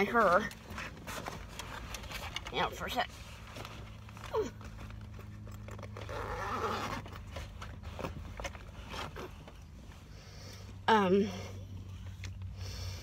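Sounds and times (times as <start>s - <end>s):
handling knocks and rustles: 0.1s - 10.0s.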